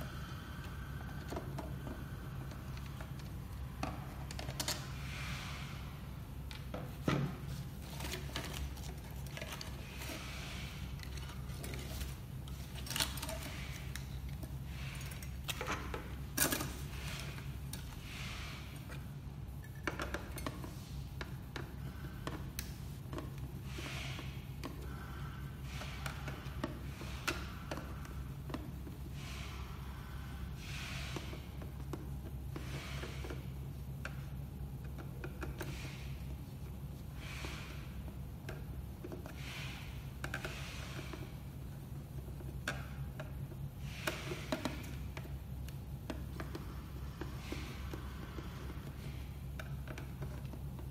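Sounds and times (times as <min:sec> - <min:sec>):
steady low hum: 0:00.0 - 0:50.9.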